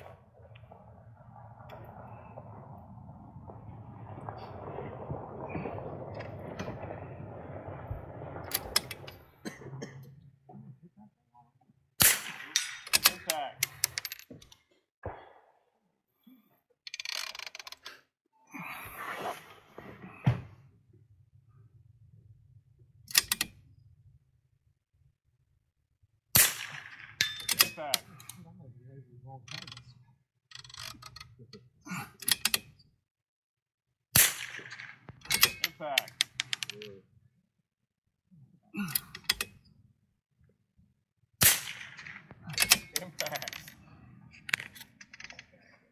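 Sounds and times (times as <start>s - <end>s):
rifle shot crack: 12.0s - 13.2s, 26.4s - 27.2s, 34.2s - 35.2s, 41.4s - 42.8s
metallic clicks of rifle bolt: 23.1s - 23.6s.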